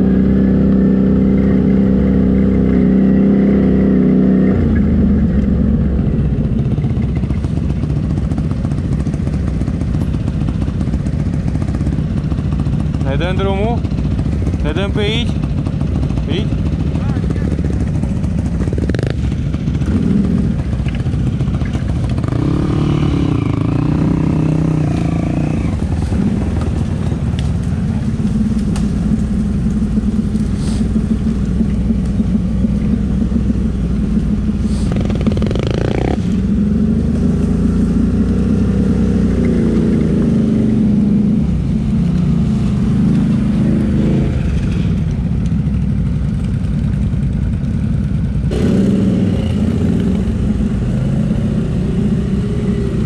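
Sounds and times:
atv engine revving: 0.0 - 53.0.

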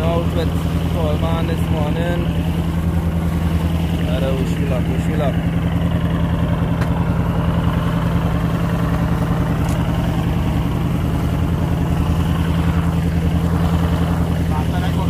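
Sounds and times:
boat engine droning: 0.0 - 15.0
water rushing past hull: 0.0 - 15.0.

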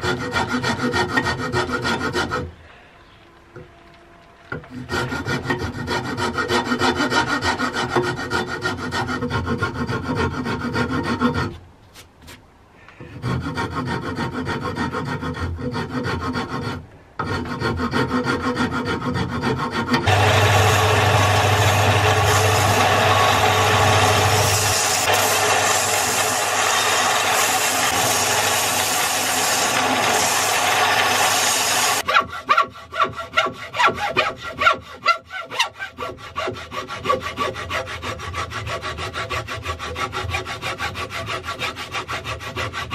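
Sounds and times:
rasp scraping wood: 0.0 - 2.5, 4.5 - 12.4, 13.0 - 42.9
wood grinding on sander belt: 19.9 - 32.1
belt sander humming: 20.0 - 32.1.

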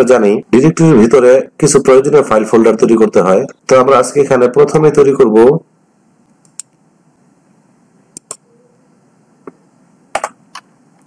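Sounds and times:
faint background hiss: 0.0 - 11.0
computer mouse clicks: 8.2 - 8.4.

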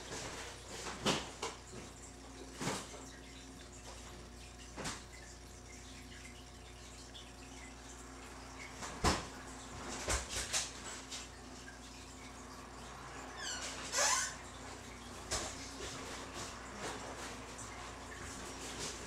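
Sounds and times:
faint room hum: 0.0 - 19.0
short squeak: 13.4 - 14.4.

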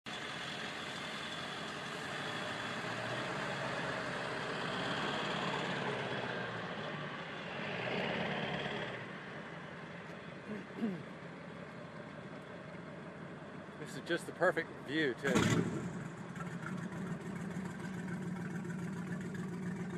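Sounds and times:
vehicle engine running: 11.2 - 19.9.

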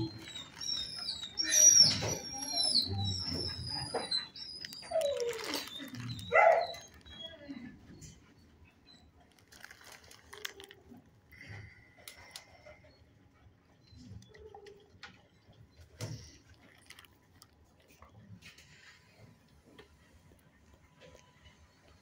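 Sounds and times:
dog whining: 0.0 - 8.1
dog barking: 6.3 - 6.8.

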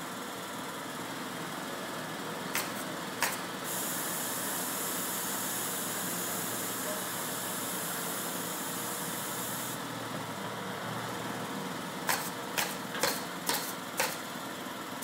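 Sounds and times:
hiss: 2.6 - 9.8.

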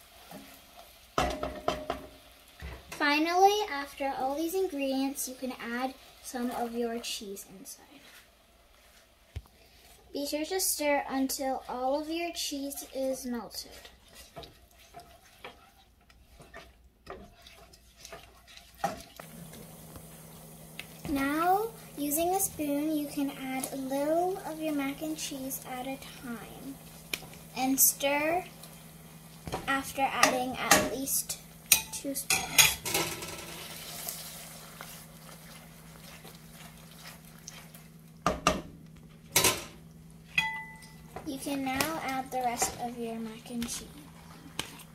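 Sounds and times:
spatula stirring in pan: 0.0 - 39.4, 40.2 - 44.9
kitchenware clattering: 1.2 - 2.1, 31.7 - 33.7, 39.3 - 41.3
spatula scraping a pan: 10.8 - 19.2, 31.7 - 38.4, 41.4 - 44.9
steady low hum: 19.2 - 44.9.

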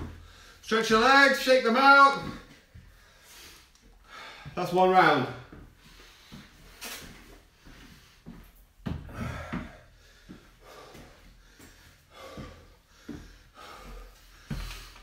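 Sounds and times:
man breathing hard: 0.0 - 0.7, 2.7 - 4.6, 5.8 - 6.8, 7.4 - 15.0
feet thudding on rubber floor: 5.5 - 15.0.

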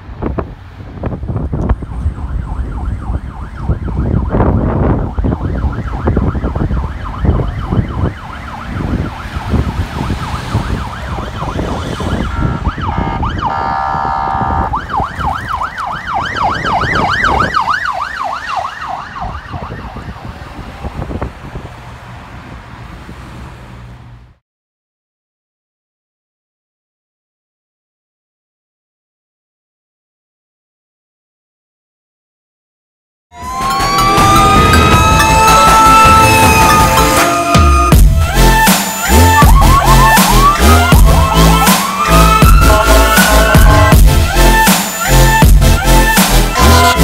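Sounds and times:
low traffic rumble: 0.0 - 24.4, 33.4 - 47.0
sirens wailing: 1.1 - 23.3, 33.4 - 47.0
fast siren yelp: 1.7 - 20.5, 33.4 - 47.0
horn blast: 12.2 - 14.7, 33.4 - 47.0.

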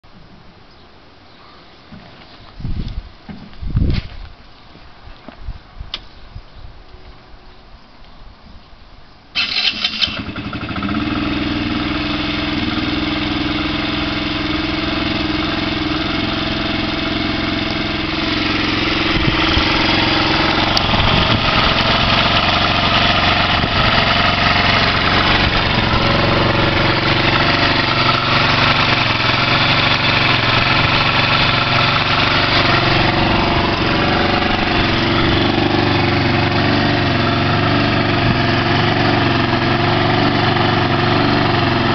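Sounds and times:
scooter engine cranking: 9.4 - 41.9
scooter engine idling: 9.4 - 41.9.

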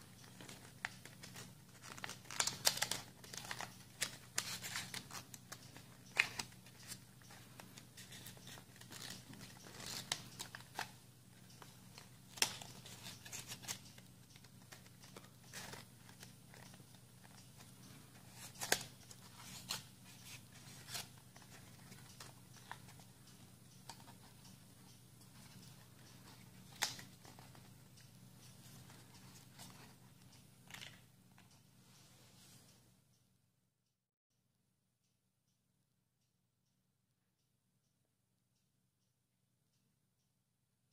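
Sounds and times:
faint low hum: 0.0 - 33.5
paper rustling and crackling: 0.2 - 11.0.

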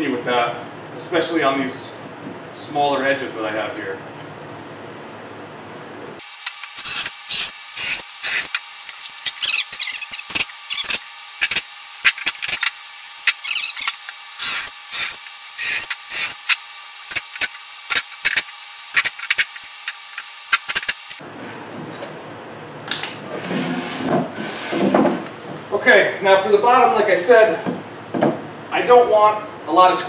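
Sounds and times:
cordless drill driving screws: 6.2 - 21.2.

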